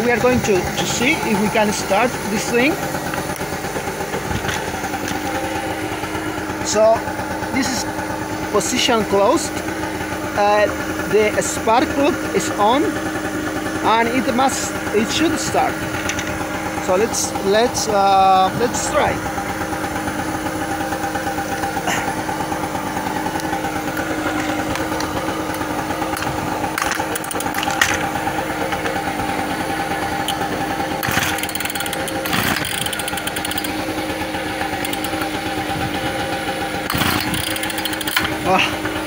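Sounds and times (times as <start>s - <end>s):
chainsaw pull-start: 0.0s - 5.3s, 21.5s - 29.0s, 30.1s - 39.0s
small engine running: 0.0s - 39.0s.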